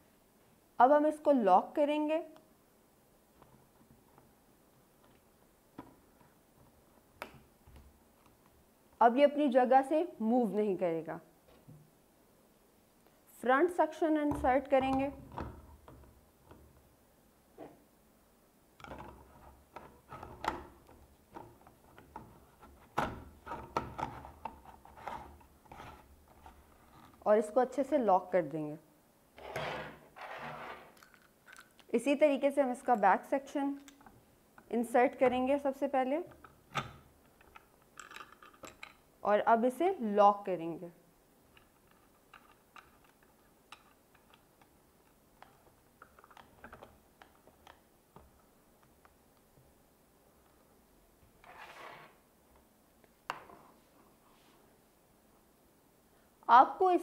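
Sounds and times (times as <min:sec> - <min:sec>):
plastic parts clicking and knocking: 0:18.8 - 0:27.2, 0:30.9 - 0:31.9, 0:36.3 - 0:39.1, 0:41.5 - 0:49.4.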